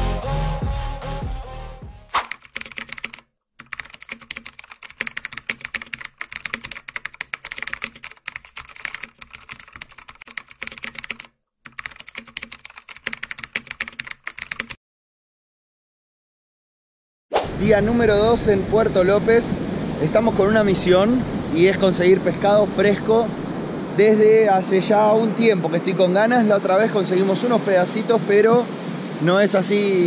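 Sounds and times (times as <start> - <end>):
typing on computer keyboard: 2.2 - 14.8.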